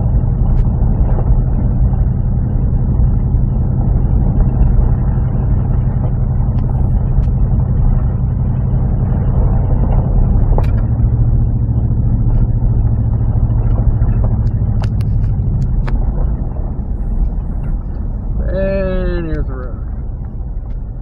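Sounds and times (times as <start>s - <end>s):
engine and tyres droning: 0.0s - 21.0s
sharp clicks and ticks: 13.5s - 20.9s.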